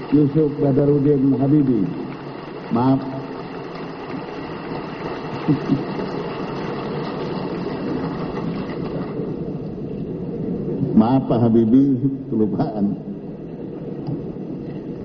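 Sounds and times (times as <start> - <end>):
large audience applauding: 0.0 - 9.3.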